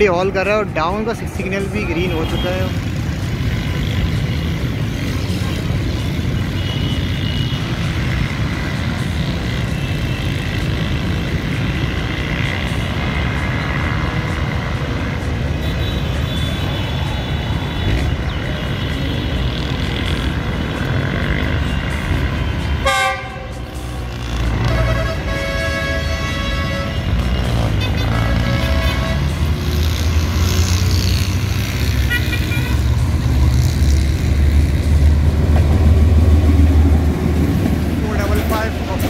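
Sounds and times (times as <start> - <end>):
locomotive rumble: 17.6 - 39.0
train horn blast: 22.8 - 23.6, 24.6 - 29.3.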